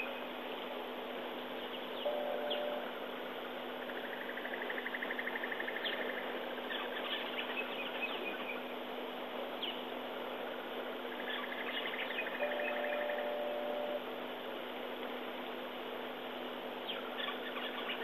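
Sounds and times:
faint steady hum: 0.0s - 18.0s
insects chorus: 0.0s - 18.0s
bird chirps and calls: 3.9s - 8.7s, 16.8s - 18.0s
insect pulsing trill: 11.1s - 14.0s.

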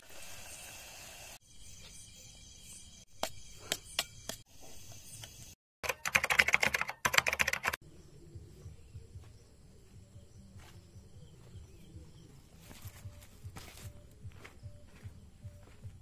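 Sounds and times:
rapid keyboard typing: 5.8s - 7.8s.

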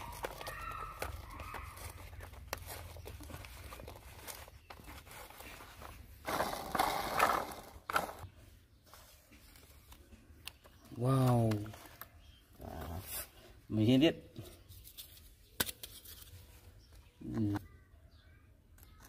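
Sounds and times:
plastic toy wheels clicking: 0.0s - 5.3s, 6.2s - 8.2s.

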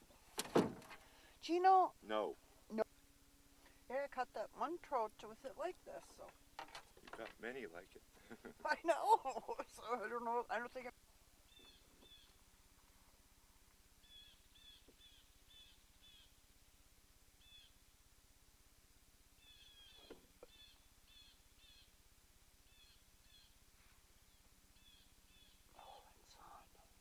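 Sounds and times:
faint bird calling: 11.5s - 12.4s, 14.0s - 16.4s, 17.4s - 17.8s, 19.4s - 22.0s, 22.7s - 23.6s, 24.2s - 26.6s.

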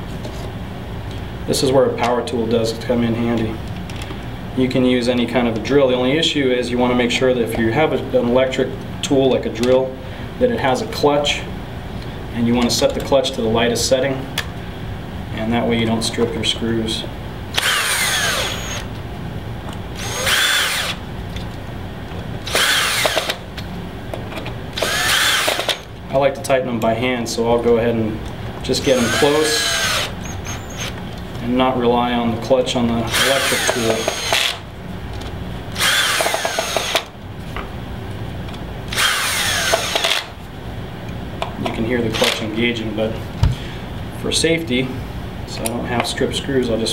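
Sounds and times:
cordless drill motor whine: 17.6s - 18.9s, 20.0s - 21.0s, 22.4s - 23.4s, 24.8s - 25.9s, 28.8s - 31.0s, 33.1s - 34.6s, 35.7s - 37.1s, 38.9s - 40.3s
drill clutch rapid clicking: 17.6s - 18.9s, 20.0s - 21.0s, 22.5s - 23.4s, 24.8s - 25.9s, 28.8s - 31.0s, 33.1s - 34.6s, 35.8s - 37.1s, 38.9s - 40.3s.

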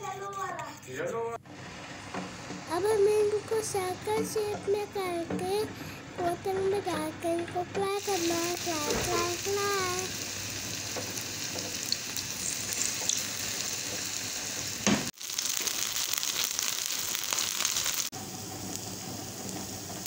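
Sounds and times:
food sizzling in oil: 7.8s - 20.0s.

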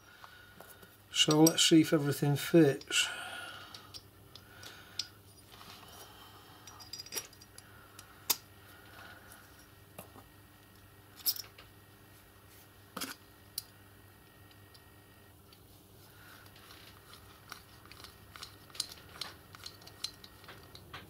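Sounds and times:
small metal parts clicking: 6.6s - 8.4s, 11.2s - 11.6s, 16.4s - 21.0s.

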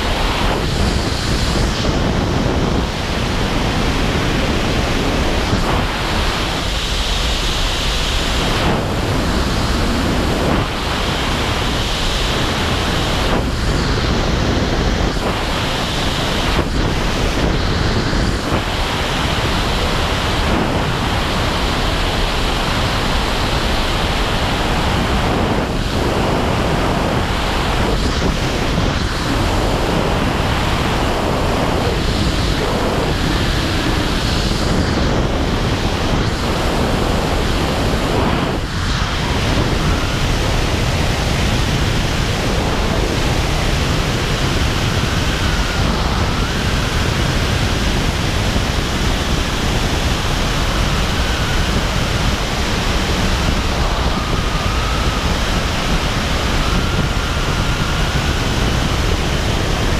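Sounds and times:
airflow rushing over microphone: 0.0s - 59.9s.

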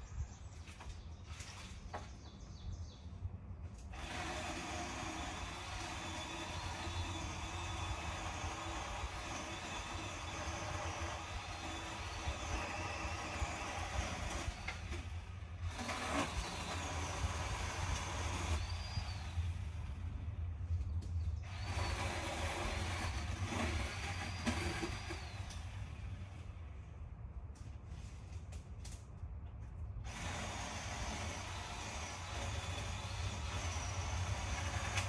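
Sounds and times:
chainsaw motor whine: 3.9s - 20.2s, 21.4s - 26.6s, 30.0s - 35.0s.

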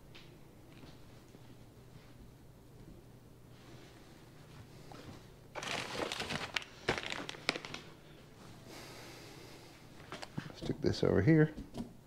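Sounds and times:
packaging rustling and crinkling: 5.5s - 8.0s.

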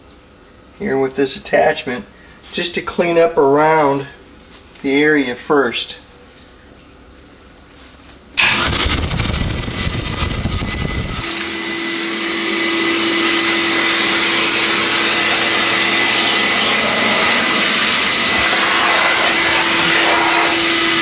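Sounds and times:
vacuum cleaner running: 8.4s - 21.0s.

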